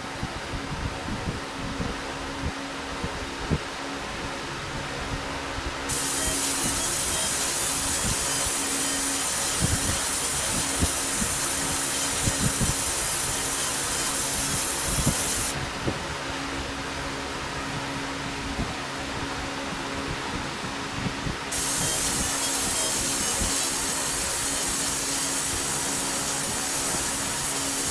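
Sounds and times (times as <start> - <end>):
machine fan hum: 0.0 - 27.9
laser high-pitched hiss: 5.9 - 15.6, 21.5 - 27.9.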